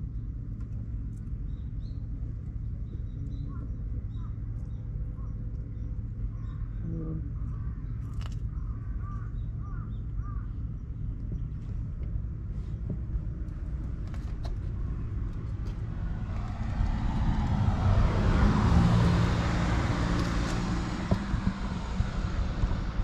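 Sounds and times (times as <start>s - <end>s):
steady low rumble: 0.0s - 23.0s
car driving past: 15.0s - 23.0s.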